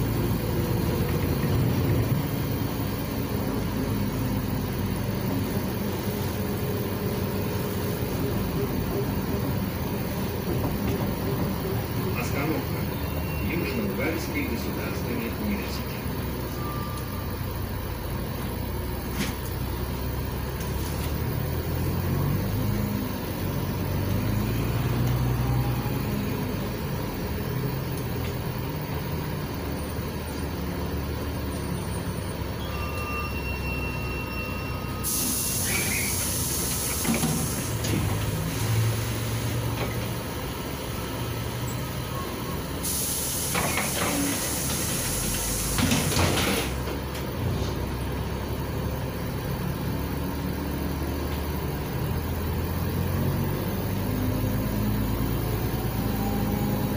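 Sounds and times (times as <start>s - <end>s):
bus engine droning: 0.0s - 56.9s
pneumatic air hiss: 35.0s - 39.5s, 42.8s - 46.6s.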